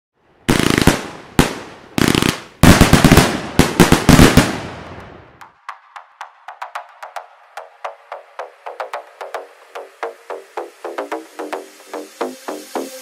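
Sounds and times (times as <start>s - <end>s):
fireworks bursting with cracks: 0.5s - 5.6s.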